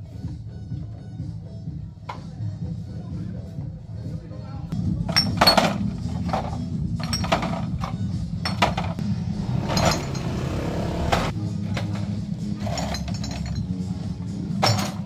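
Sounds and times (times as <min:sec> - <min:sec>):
glass bottles clinking: 0:05.0 - 0:09.0, 0:09.6 - 0:10.6, 0:12.6 - 0:13.7.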